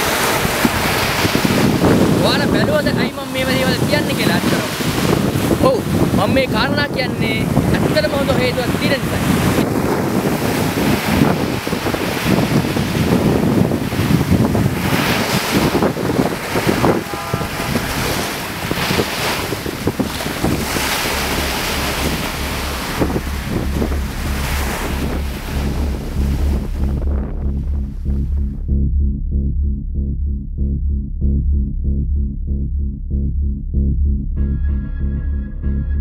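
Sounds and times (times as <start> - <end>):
waves breaking on a beach: 0.0 - 26.8
wind buffeting microphone: 0.0 - 35.8.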